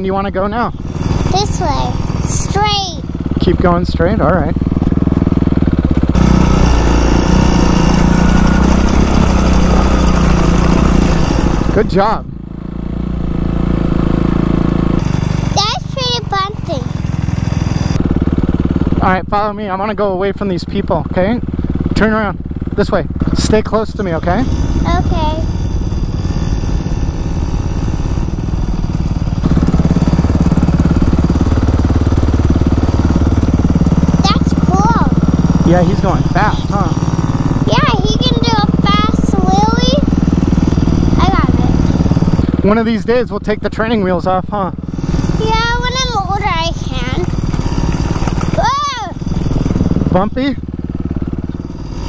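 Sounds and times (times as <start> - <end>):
dirt bike engine: 0.0 - 52.0.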